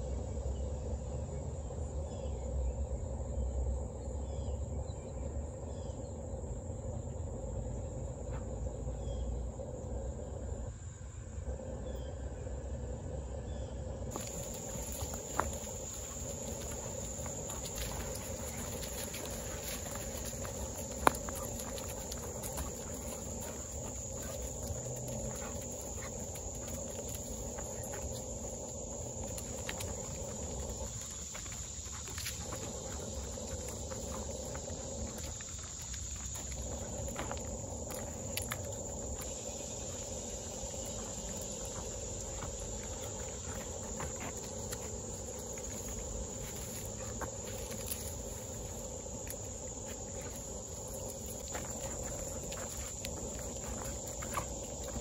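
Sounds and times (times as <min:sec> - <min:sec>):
high insect hum: 0:00.0 - 0:55.0
footsteps on wood chips: 0:14.1 - 0:39.5, 0:49.8 - 0:55.0.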